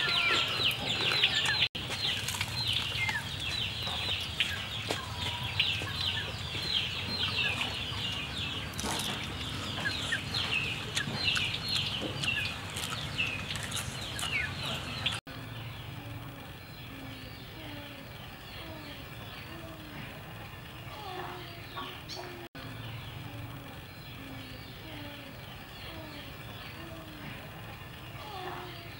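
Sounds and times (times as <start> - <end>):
chicks peeping: 0.0 - 28.9
crisp crunching bites: 12.2 - 14.6.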